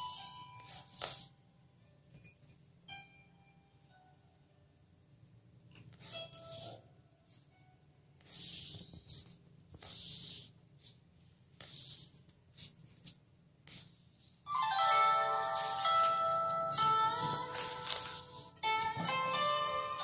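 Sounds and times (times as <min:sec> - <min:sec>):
plucked-string background music: 0:00.0 - 0:04.7, 0:14.5 - 0:20.0.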